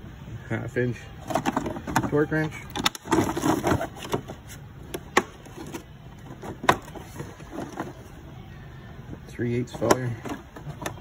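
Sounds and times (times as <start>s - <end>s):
low steady background noise: 0.0s - 11.0s.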